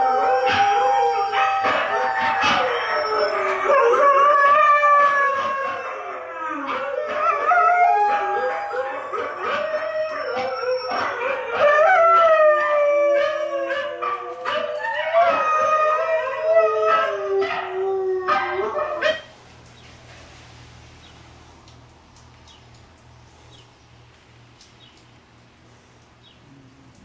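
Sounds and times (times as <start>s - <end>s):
huskies howling: 0.0s - 19.3s.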